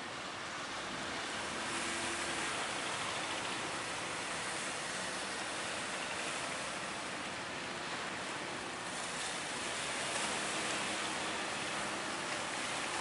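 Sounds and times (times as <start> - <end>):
faint low boat engine hum: 0.0 - 13.0.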